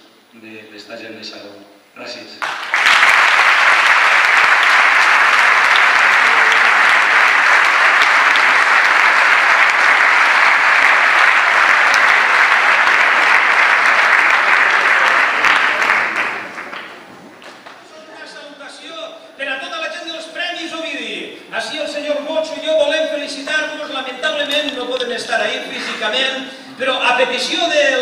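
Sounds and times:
audience applauding: 2.4 - 18.0.

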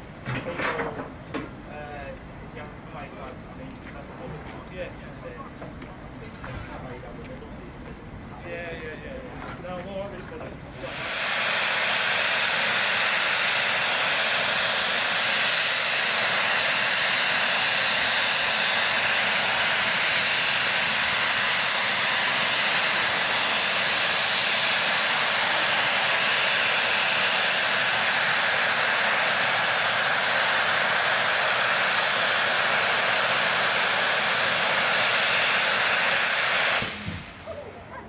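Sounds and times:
steam locomotive blowing off steam: 10.7 - 37.4.

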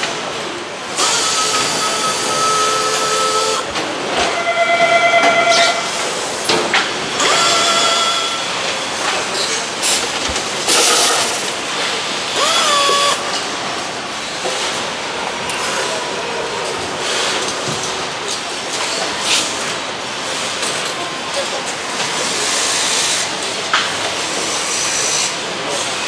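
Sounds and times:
air tools whining: 0.8 - 3.8, 7.2 - 13.4.

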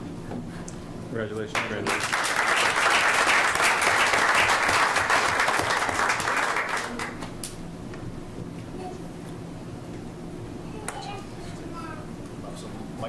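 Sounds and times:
audience applauding: 1.6 - 7.4.

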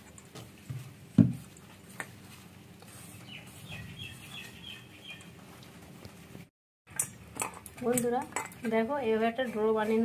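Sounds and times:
hand kneading dough rustle: 0.0 - 6.5, 8.7 - 10.0
birds chirping faintly: 2.8 - 6.3.

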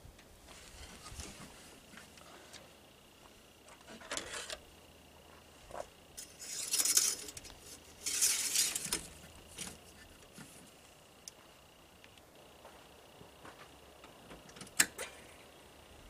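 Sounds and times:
metal dipstick scraping: 8.0 - 9.7.

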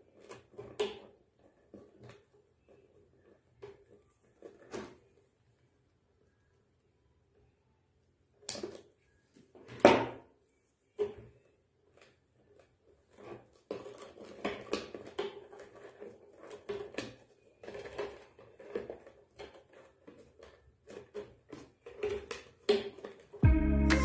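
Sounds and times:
paper tubes rustling and scraping: 0.0 - 5.4, 10.6 - 23.4.

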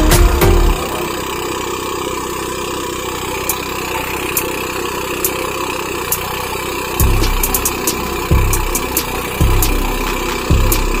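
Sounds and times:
rice thresher engine running: 0.0 - 11.0
sharp ticks: 3.3 - 11.0.

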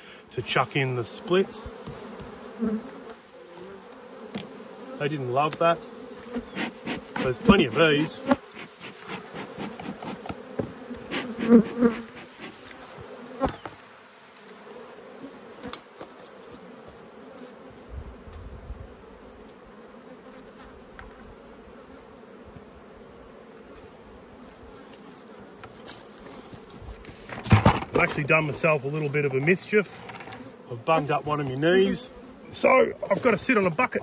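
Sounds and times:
bees buzzing: 0.0 - 34.0
bee drone passing close: 2.4 - 15.7.

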